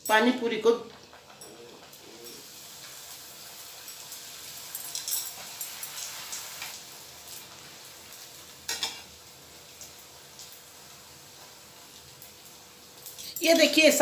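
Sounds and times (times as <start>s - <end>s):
dough sizzling in hot oil: 0.0s - 14.0s.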